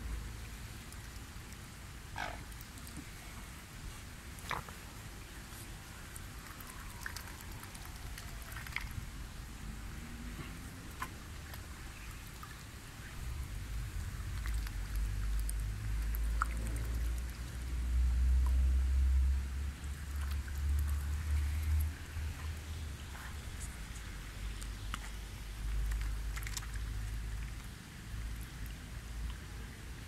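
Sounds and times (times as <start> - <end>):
water clicks and drips: 6.0 - 9.0, 10.8 - 12.6, 13.7 - 18.8, 19.8 - 22.7, 23.6 - 29.6.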